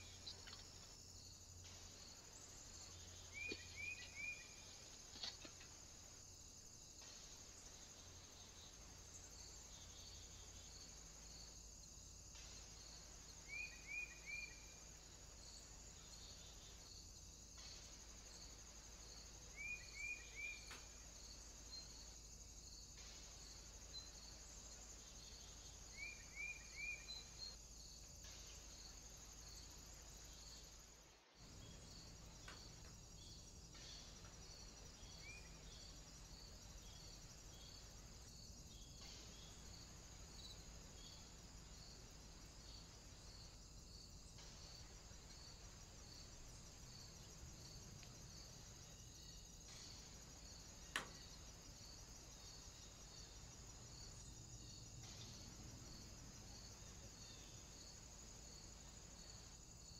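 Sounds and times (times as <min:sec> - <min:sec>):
insect chorus: 0:00.0 - 0:59.9
bird chirping: 0:02.8 - 0:04.8.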